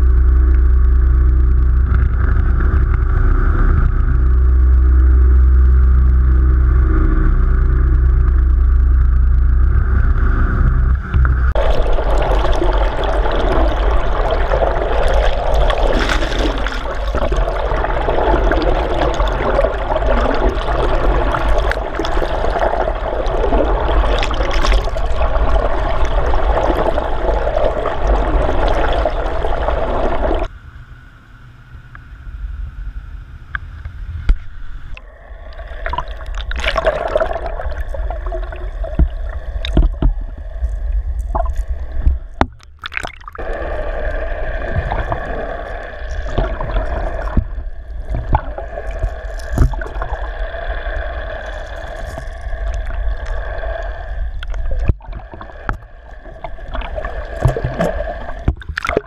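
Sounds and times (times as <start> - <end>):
boat engine hum: 0.0 - 59.0
water rushing and gurgling: 11.0 - 30.5, 34.4 - 59.0
knocks and bubbling: 11.1 - 30.5, 35.7 - 43.6, 44.7 - 50.2, 54.4 - 59.0.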